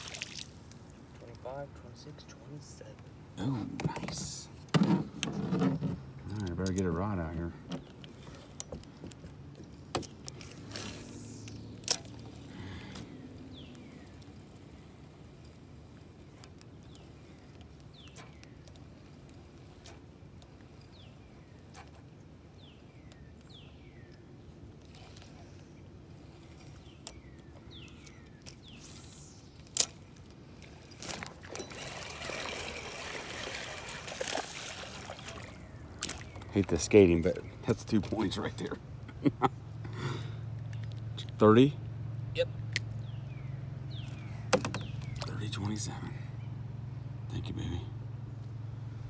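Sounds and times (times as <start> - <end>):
water trickling and dripping: 0.0 - 1.5, 29.7 - 37.2.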